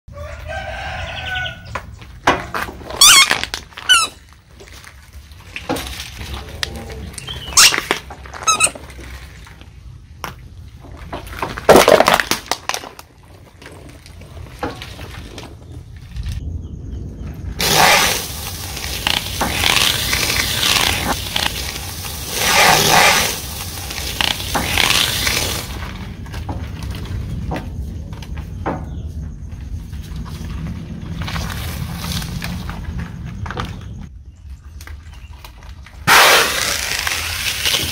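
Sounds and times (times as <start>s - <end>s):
foam crunching under tyre: 1.8s - 16.4s, 17.6s - 34.2s, 34.8s - 37.9s
rubber ball squeaking: 2.9s - 4.3s, 7.2s - 9.0s
loud sharp crack: 36.0s - 37.9s.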